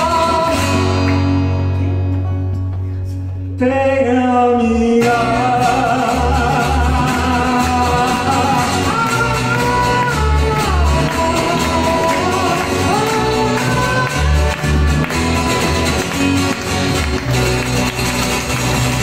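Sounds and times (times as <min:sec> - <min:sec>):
man singing: 0:00.0 - 0:01.4, 0:03.6 - 0:15.8
acoustic guitars strumming: 0:00.0 - 0:19.0.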